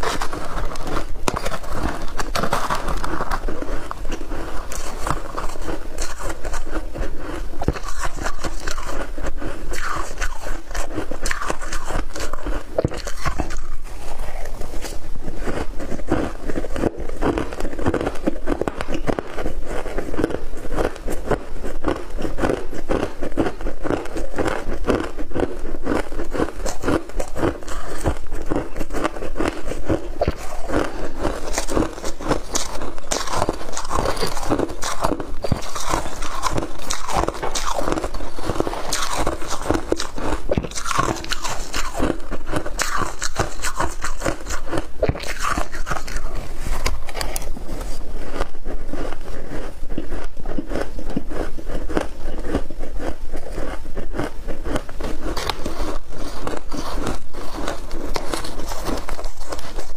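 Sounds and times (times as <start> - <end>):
shaved ice crunching: 30.2 - 47.3.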